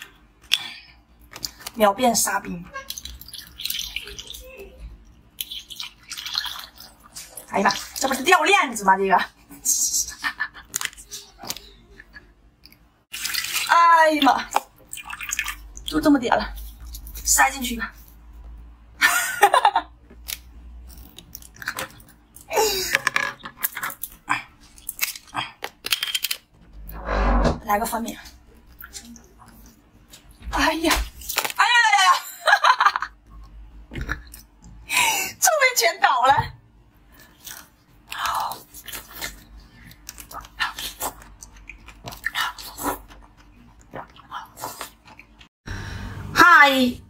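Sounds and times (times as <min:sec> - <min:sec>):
ice being chewed: 0:20.2 - 0:22.5.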